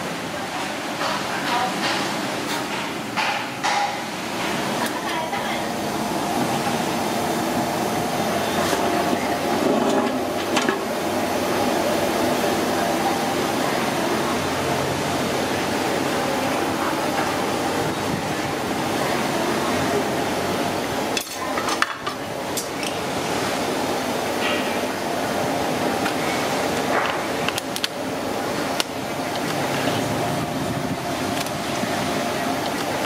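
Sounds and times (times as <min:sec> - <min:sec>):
rushing kitchen background noise: 0:00.0 - 0:33.0.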